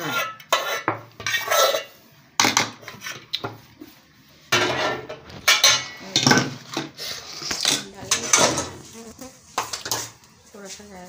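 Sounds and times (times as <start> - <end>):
steel spoon scraping bowl: 0.0 - 2.0.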